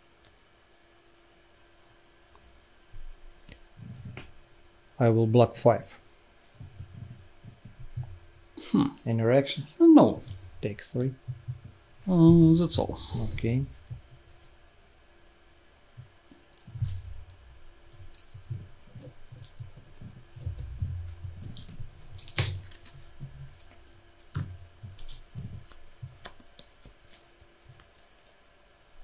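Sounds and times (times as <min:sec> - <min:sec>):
cards tapping and clicking: 0:24.3 - 0:28.3.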